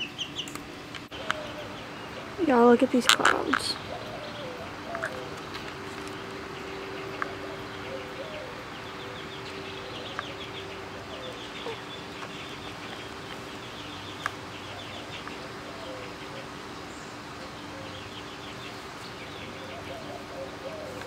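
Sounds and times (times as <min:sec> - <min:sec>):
birds chirping trills: 0:00.0 - 0:21.0
steady hum: 0:00.0 - 0:21.0
hens clucking: 0:01.1 - 0:02.4, 0:03.0 - 0:16.8.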